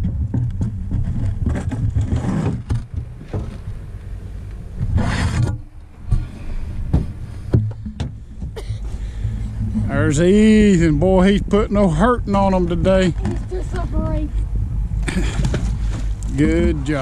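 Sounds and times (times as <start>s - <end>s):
knocks and scrapes of handling: 0.0s - 10.6s, 15.1s - 17.0s
low boat rumble: 0.0s - 17.0s
rasping scrape: 0.9s - 3.7s, 4.8s - 6.6s.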